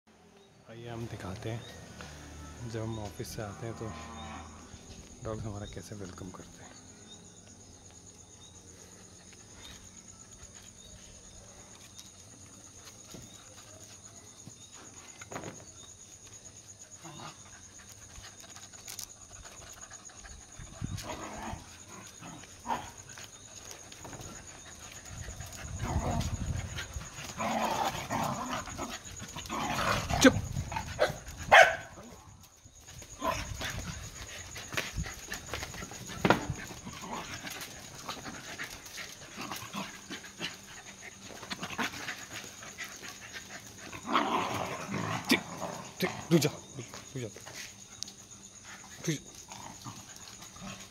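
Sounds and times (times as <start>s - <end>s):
dogs panting: 16.7s - 31.8s, 32.8s - 50.9s.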